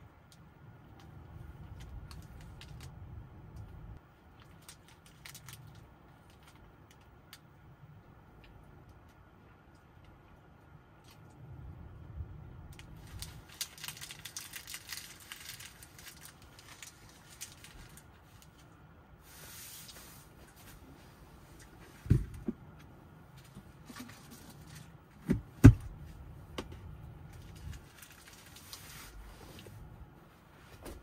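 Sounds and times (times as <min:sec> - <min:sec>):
paper tissue rustling: 0:13.0 - 0:21.7, 0:27.4 - 0:30.9.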